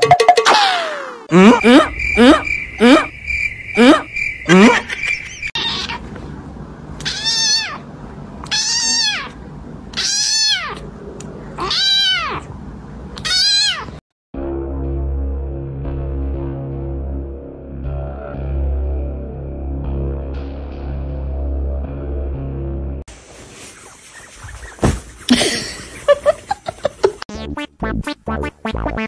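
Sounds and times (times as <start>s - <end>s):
kitten meowing: 5.6s - 6.0s, 7.0s - 7.8s, 8.4s - 10.8s, 11.6s - 12.4s, 13.2s - 13.9s.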